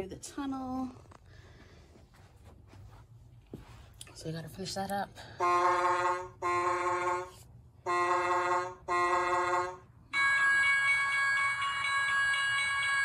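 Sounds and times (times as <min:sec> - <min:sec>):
electronic train whistle toots: 0:05.4 - 0:10.7.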